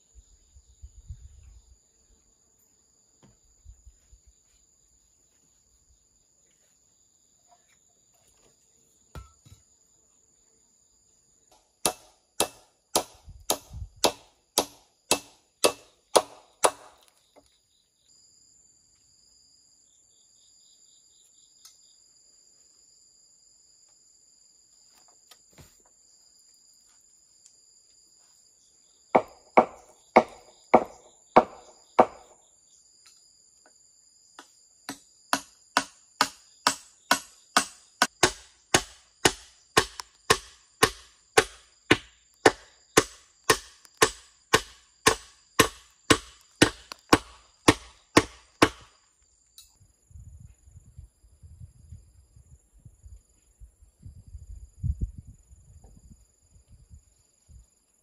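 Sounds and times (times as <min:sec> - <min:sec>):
high insect drone: 0:00.0 - 0:58.0
hammer striking wooden rail: 0:11.5 - 0:17.0, 0:29.2 - 0:32.3, 0:34.4 - 0:48.9.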